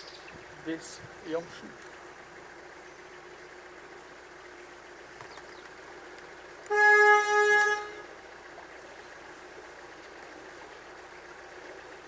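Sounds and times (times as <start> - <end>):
boat horn blast: 6.6 - 8.2.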